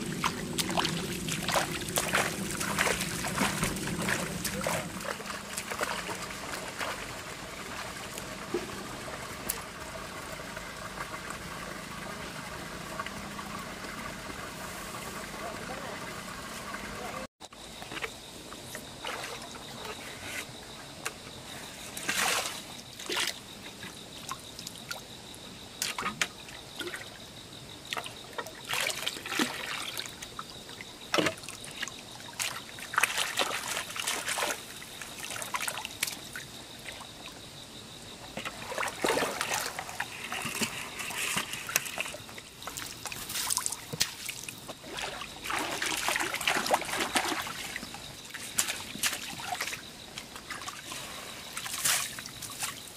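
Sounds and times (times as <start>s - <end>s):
stream water splashing and trickling: 0.0s - 52.9s
water draining through mesh: 38.4s - 49.8s.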